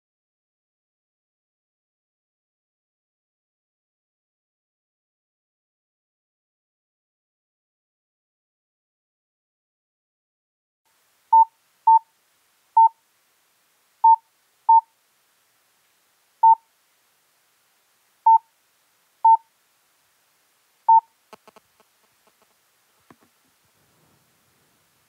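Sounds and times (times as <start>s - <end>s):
short electronic beeps: 14.0s - 14.9s, 18.3s - 18.5s, 19.2s - 19.5s, 20.9s - 21.6s
faint clicks: 21.3s - 23.4s.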